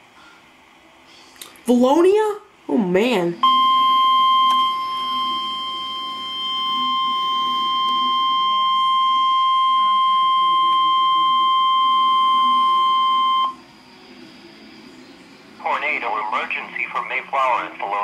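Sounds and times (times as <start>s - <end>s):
steady electronic alarm tone: 3.2s - 16.8s.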